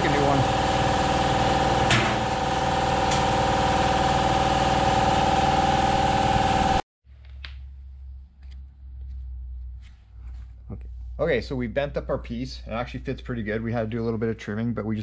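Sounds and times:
machine motor droning with whine: 0:00.0 - 0:06.8.

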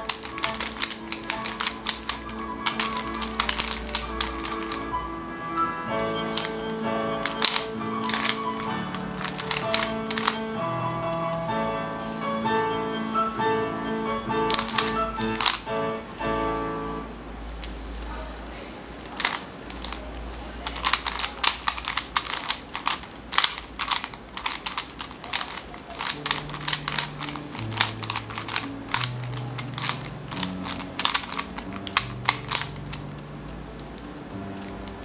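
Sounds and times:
plastic puzzle clacking: 0:00.0 - 0:05.1, 0:06.0 - 0:11.5, 0:14.3 - 0:16.4, 0:19.0 - 0:35.0
background music: 0:00.0 - 0:17.2.

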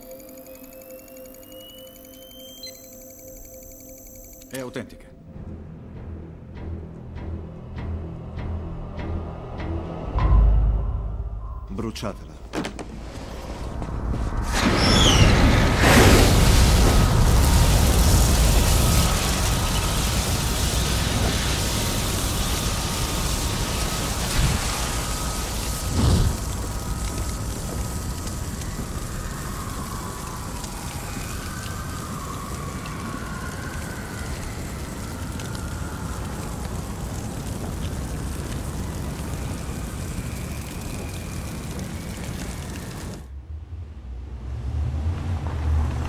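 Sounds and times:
faint crackles: 0:12.4 - 0:43.3
fire burning: 0:12.5 - 0:46.0
flames rushing with deep rumble: 0:12.8 - 0:46.0.

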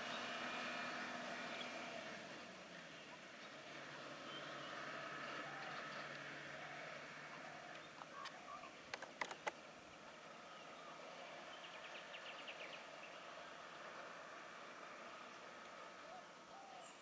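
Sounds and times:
birds chirping: 0:02.8 - 0:17.0
sharp clicks: 0:08.0 - 0:09.6.

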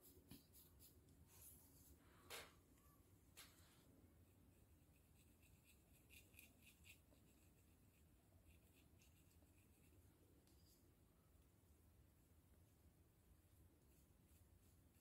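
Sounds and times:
comb scratching scalp: 0:04.2 - 0:10.8.

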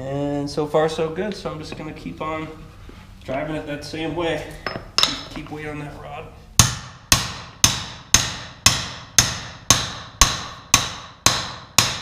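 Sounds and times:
hammer striking metal: 0:04.6 - 0:05.4, 0:06.6 - 0:12.0.

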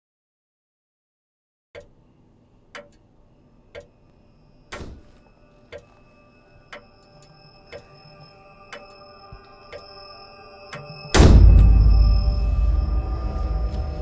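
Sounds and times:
clock ticking: 0:01.8 - 0:02.0, 0:02.7 - 0:03.1, 0:03.7 - 0:04.0, 0:05.7 - 0:05.9, 0:06.7 - 0:08.0, 0:08.7 - 0:09.0, 0:09.7 - 0:10.0
faint sustained tones: 0:02.0 - 0:14.0
heavy hit: 0:11.1 - 0:14.0.

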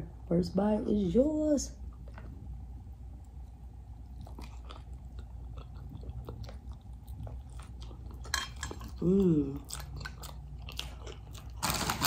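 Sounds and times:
crunchy chewing: 0:03.2 - 0:12.0.

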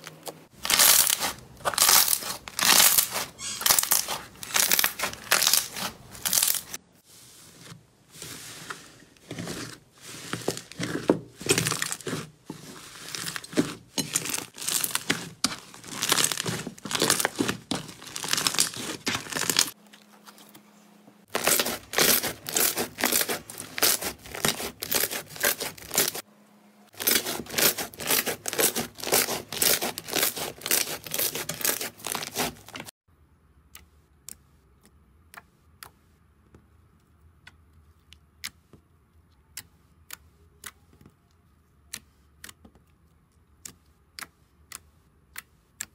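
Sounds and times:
slime squeezed wet crackling: 0:00.6 - 0:06.8.

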